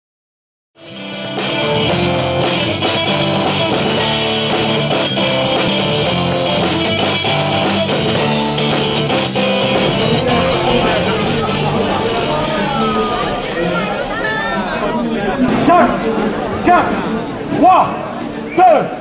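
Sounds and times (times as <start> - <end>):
rock music with guitars and drums: 0.8 - 13.9.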